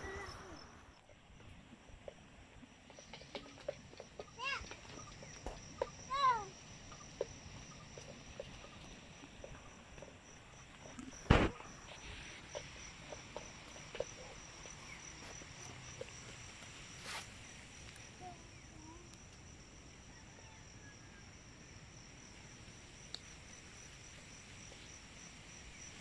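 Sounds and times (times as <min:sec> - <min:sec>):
faint rustle: 0:00.0 - 0:19.1
small ticks: 0:00.0 - 0:19.5, 0:23.0 - 0:23.4
insect chirr: 0:00.0 - 0:26.0
sharp knock: 0:11.2 - 0:11.6.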